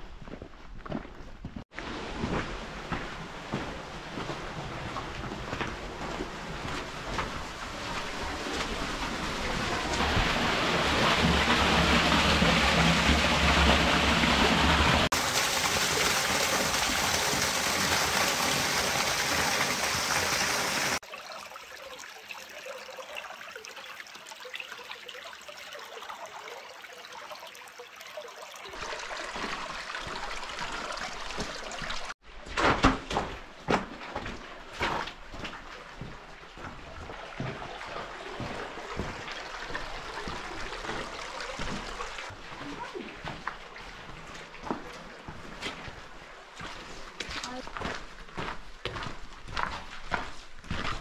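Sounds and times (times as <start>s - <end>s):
footsteps on wet gravel: 0.0s - 10.2s, 41.6s - 51.0s
creek water rushing and trickling: 1.7s - 32.2s, 34.4s - 50.8s.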